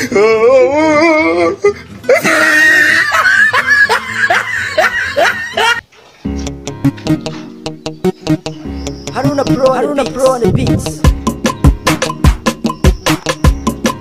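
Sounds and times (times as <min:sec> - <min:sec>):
person laughing loudly: 0:00.0 - 0:05.8
music with plucked notes: 0:06.2 - 0:14.0.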